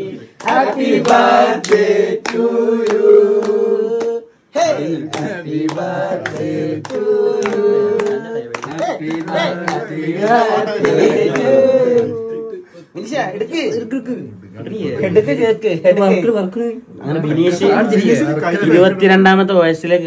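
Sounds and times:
group singing: 0.0s - 12.9s
hand claps: 0.4s - 4.2s, 5.1s - 12.1s.

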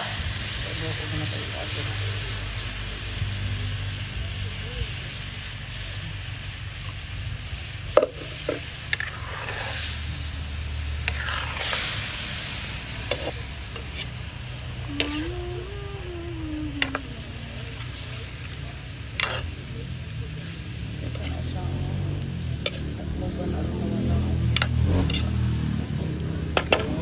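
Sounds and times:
fish sizzling in a wok: 0.0s - 27.0s
metal spoon scraping a pan: 8.0s - 10.1s, 11.0s - 12.2s, 13.0s - 14.2s, 15.0s - 15.3s, 19.1s - 19.6s, 21.0s - 21.5s, 22.6s - 22.9s, 24.4s - 25.5s.

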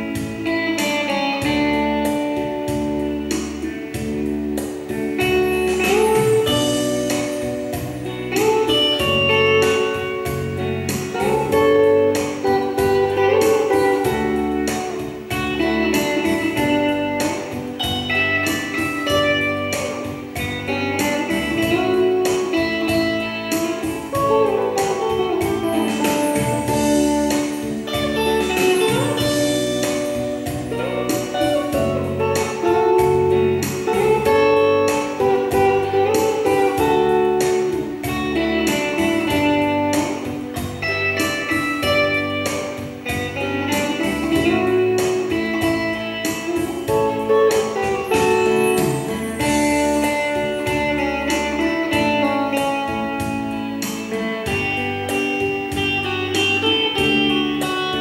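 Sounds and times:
beat and bass accompaniment: 0.0s - 58.0s
electric guitar melody: 0.0s - 58.0s.

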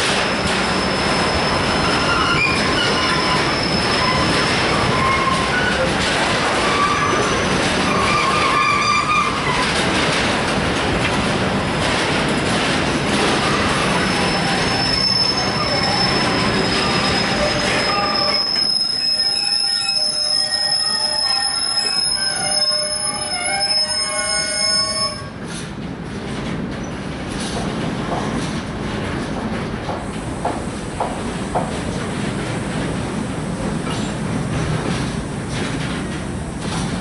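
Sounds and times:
train wheels rumbling on rails: 0.0s - 37.0s
train wheels squealing: 0.2s - 9.8s, 13.4s - 25.6s.

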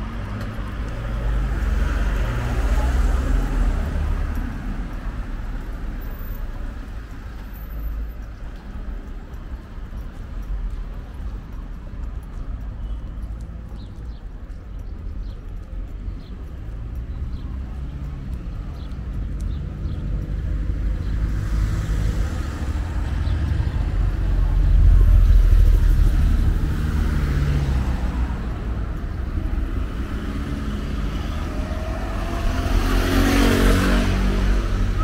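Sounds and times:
passing cars rumbling: 0.0s - 12.4s, 15.2s - 35.0s
motor scooter passing: 30.1s - 35.0s.

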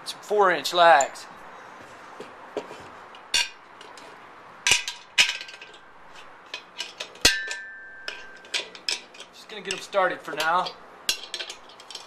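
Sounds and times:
screws clinking on metal bracket: 3.1s - 12.0s.

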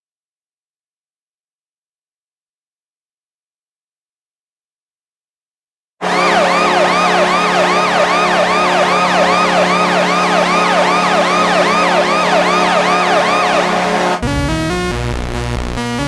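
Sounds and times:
fast warbling siren: 6.0s - 14.2s
low goal horn blast: 6.0s - 14.3s.

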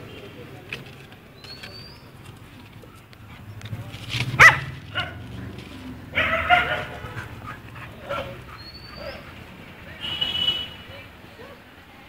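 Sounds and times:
puppies yelping: 6.1s - 9.4s.

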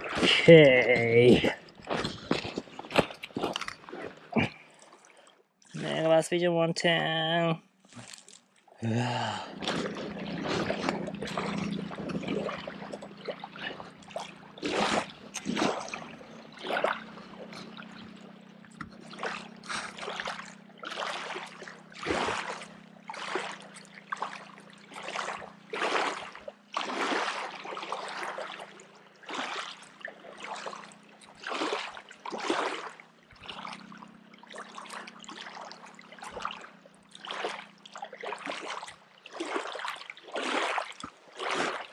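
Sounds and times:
waves lapping against shore: 0.0s - 6.3s, 9.4s - 41.9s
steady low hum: 5.8s - 38.3s.

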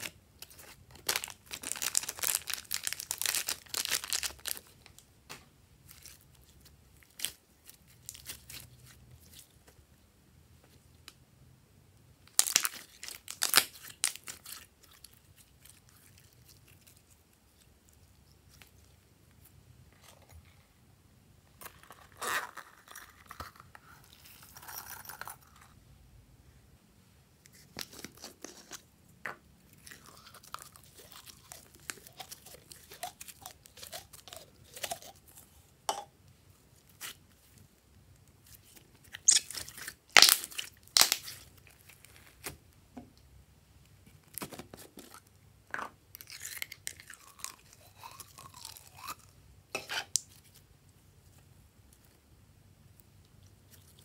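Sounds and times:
slime squelching by hand: 38.4s - 42.5s.

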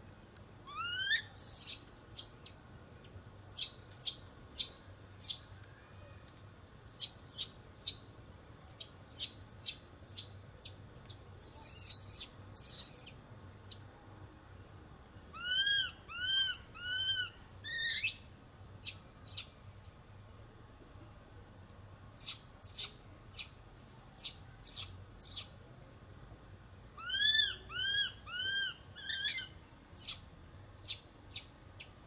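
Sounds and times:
monkey arching calls: 0.7s - 2.2s, 8.7s - 13.8s, 15.4s - 19.9s, 27.0s - 30.2s
baby monkey squeaking: 0.7s - 2.3s, 3.4s - 5.4s, 6.9s - 8.0s, 8.7s - 13.8s, 15.4s - 19.9s, 22.1s - 23.5s, 24.1s - 25.5s, 27.0s - 30.2s, 30.8s - 31.9s.

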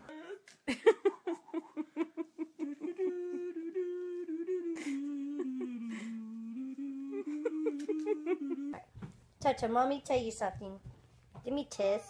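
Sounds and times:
person humming a slow tune: 2.6s - 8.9s.

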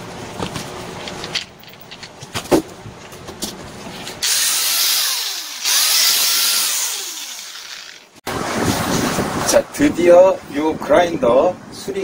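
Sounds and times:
electric angle grinder running: 4.2s - 8.2s.

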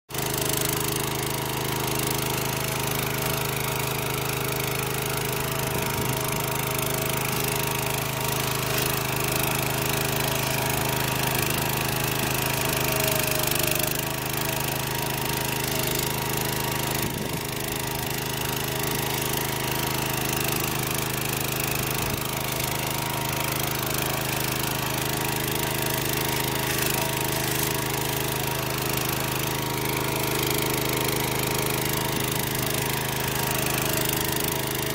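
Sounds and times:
plow cutting through sod: 0.1s - 34.9s
small tractor engine running: 0.1s - 34.9s.

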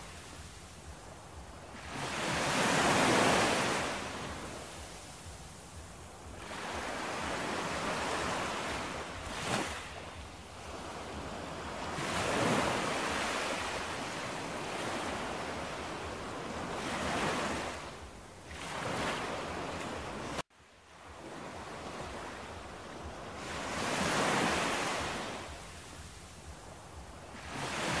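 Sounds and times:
small waves washing on sand: 0.0s - 28.0s.

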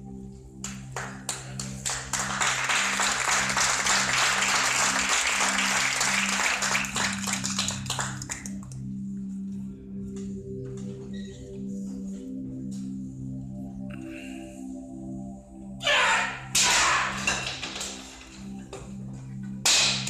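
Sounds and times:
background music tones: 0.0s - 20.0s
group clapping: 0.6s - 8.8s.

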